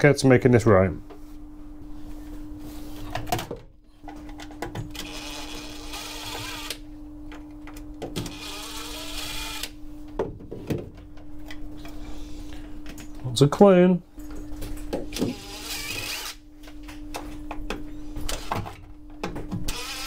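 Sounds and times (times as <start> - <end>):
steady low hum: 0.0 - 20.0
cordless drill whirring: 5.0 - 6.8, 8.3 - 9.8, 15.2 - 16.4, 19.7 - 20.0.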